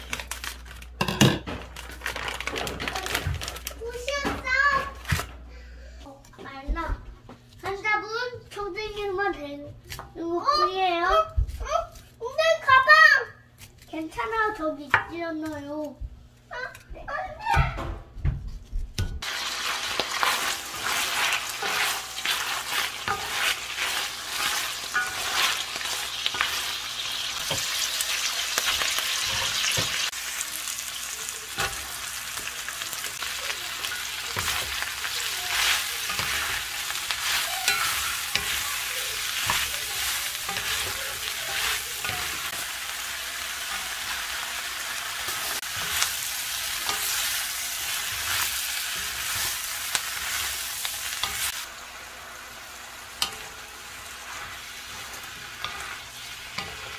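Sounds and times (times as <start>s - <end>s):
food sizzling in oil: 19.2s - 56.9s.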